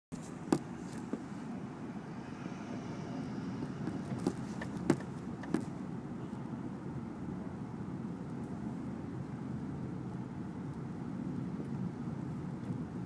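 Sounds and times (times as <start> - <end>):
car rumble from inside cabin: 0.3 - 6.8.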